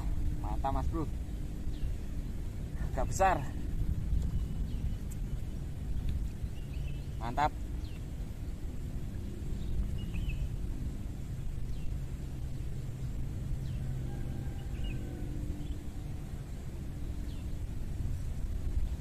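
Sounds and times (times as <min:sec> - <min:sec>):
steady low rumble: 0:00.0 - 0:19.0
high bird chirps: 0:04.1 - 0:08.1, 0:09.6 - 0:10.6.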